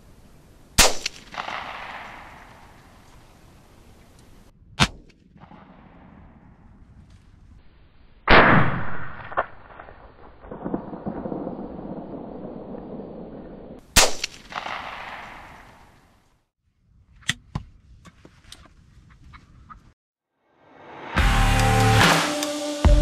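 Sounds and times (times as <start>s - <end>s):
shotgun blast: 0.8s - 2.8s, 8.3s - 9.8s, 14.0s - 15.9s.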